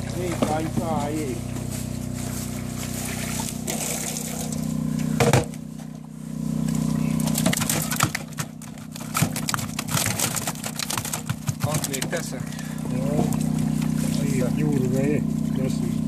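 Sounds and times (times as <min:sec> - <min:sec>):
steady machine hum: 0:00.0 - 0:16.0
water splashing and dripping: 0:02.7 - 0:04.8, 0:06.6 - 0:15.5
fish flapping against plastic: 0:07.1 - 0:15.0.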